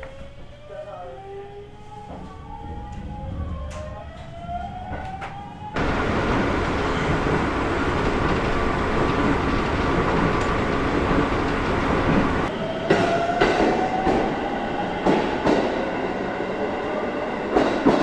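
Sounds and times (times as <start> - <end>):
train rumble and rail noise: 0.0 - 18.0
wheels clicking over rail joints: 5.0 - 12.5.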